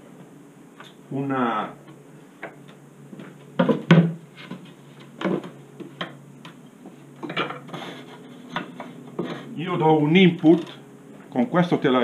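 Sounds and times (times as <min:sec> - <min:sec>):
wooden frames knocking: 0:03.6 - 0:04.6.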